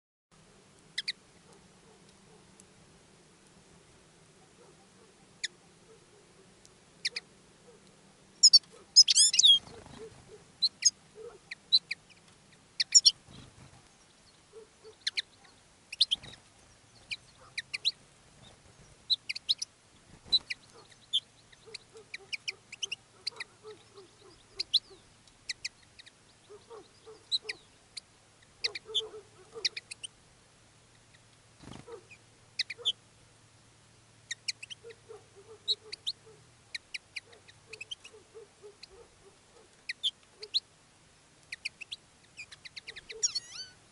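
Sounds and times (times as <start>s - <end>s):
finches chirping and twittering: 1.0s - 1.2s, 7.0s - 7.3s, 8.4s - 30.1s, 31.0s - 33.0s, 34.3s - 40.7s, 41.4s - 43.8s.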